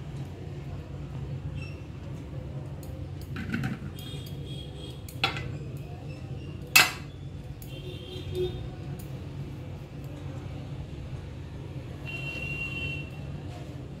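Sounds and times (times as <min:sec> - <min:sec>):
kitchen utensils clinking: 0:05.2 - 0:05.7, 0:06.7 - 0:07.1.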